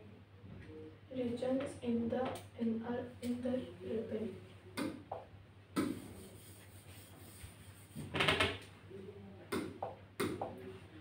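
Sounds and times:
stylus tapping touchscreen: 4.8s - 6.3s, 9.5s - 10.6s.

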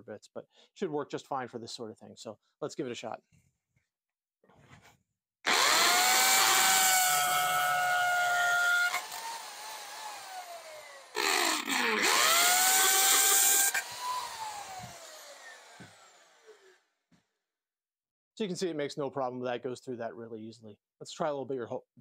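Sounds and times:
hammer drill whining: 5.5s - 16.8s.

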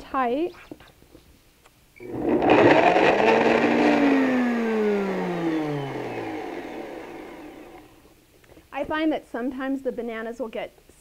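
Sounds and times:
blender motor whine: 2.0s - 8.0s.

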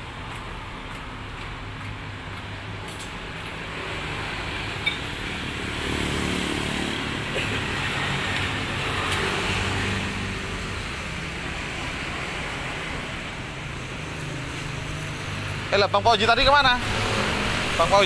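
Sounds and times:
traffic passing: 0.0s - 18.0s.

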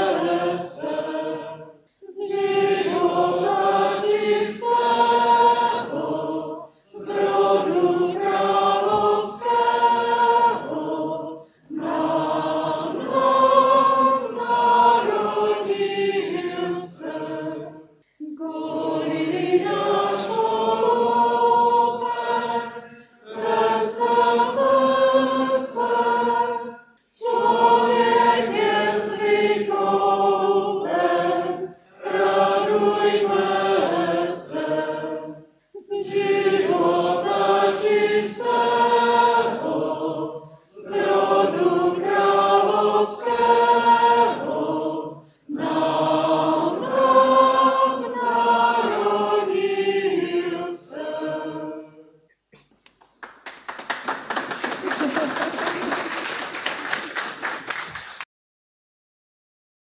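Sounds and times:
group singing a hymn: 0.0s - 52.2s.

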